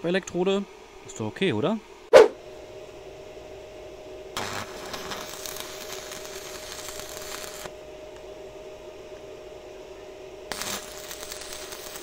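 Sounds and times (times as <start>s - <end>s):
steady low hum: 0.0s - 12.0s
loud thump: 2.1s - 2.4s
welding arc crackling and sizzling: 4.3s - 7.7s, 10.5s - 12.0s.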